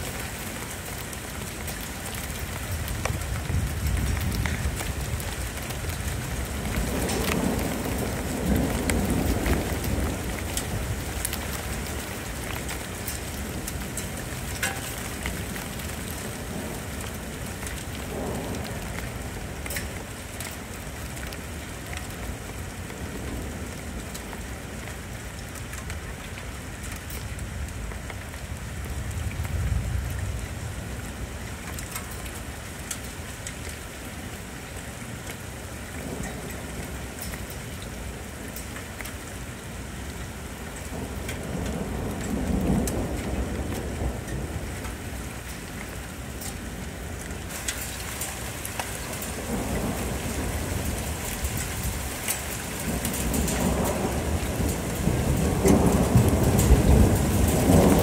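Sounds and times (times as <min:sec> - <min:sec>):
low rolling thunder: 0:00.0 - 0:24.8, 0:27.4 - 0:32.2, 0:40.0 - 0:58.0
raindrops tapping: 0:00.0 - 0:58.0
steady rain: 0:00.0 - 0:58.0.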